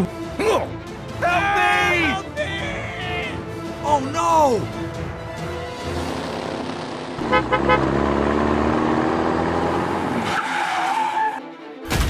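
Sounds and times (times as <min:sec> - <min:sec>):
engine revving: 0:05.7 - 0:10.4
horn toots: 0:07.2 - 0:08.1.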